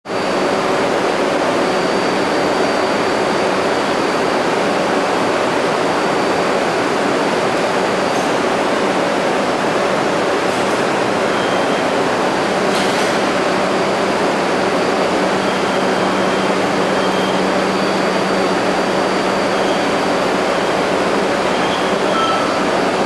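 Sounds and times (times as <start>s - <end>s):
subway station rushing noise: 0.1s - 23.0s
faint high whine: 13.4s - 23.0s.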